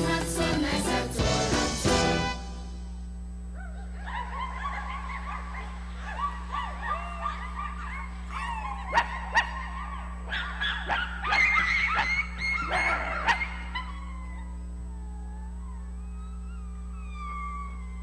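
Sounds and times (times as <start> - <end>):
low electrical hum: 0.0 - 18.0
puppies yipping and whimpering: 3.6 - 18.0.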